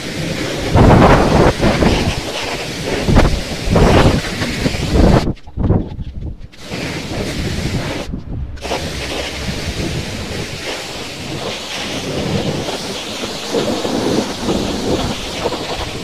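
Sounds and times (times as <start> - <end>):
pressure washer jet spraying: 6.6 - 16.0.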